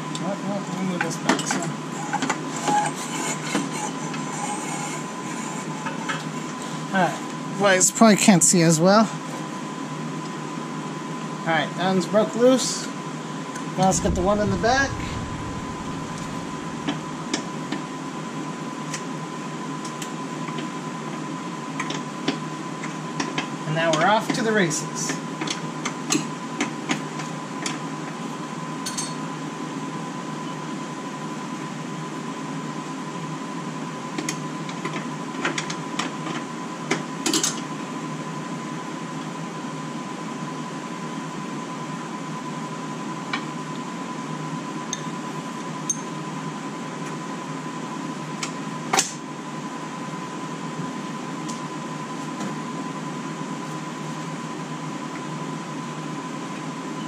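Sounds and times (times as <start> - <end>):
machine hum with high whine: 12.4 - 21.9.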